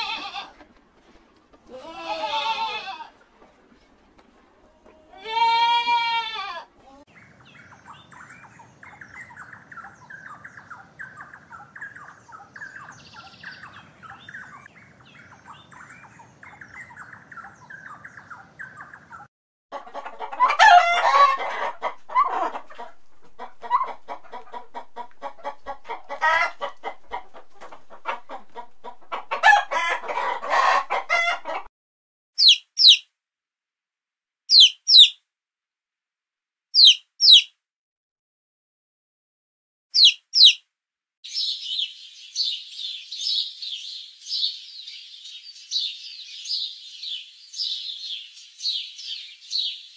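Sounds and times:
chicken clucking: 6.8s - 31.7s
chick peeping: 7.1s - 31.7s, 32.4s - 33.0s, 34.5s - 35.2s, 36.8s - 37.5s, 40.0s - 40.6s, 41.3s - 49.9s.

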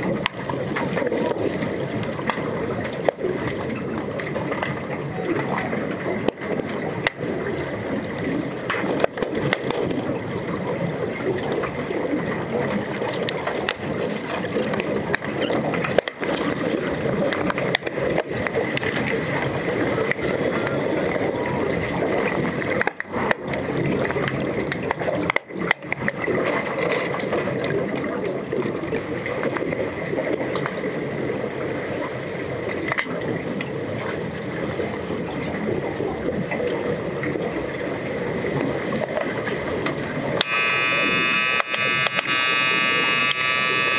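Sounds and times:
underwater rushing water: 0.0s - 40.4s
sharp underwater clicks and knocks: 8.7s - 10.0s.

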